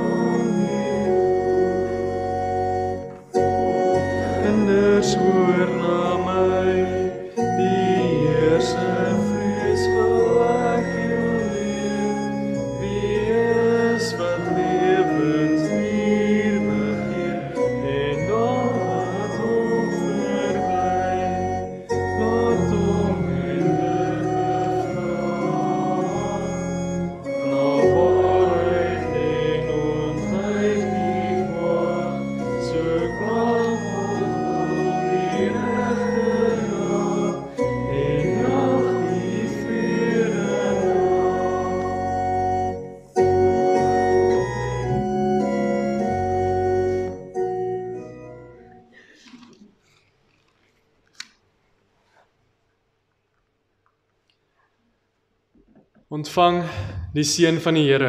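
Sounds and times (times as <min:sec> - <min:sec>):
congregation singing: 0:00.0 - 0:47.5
church organ playing chords: 0:00.0 - 0:49.2.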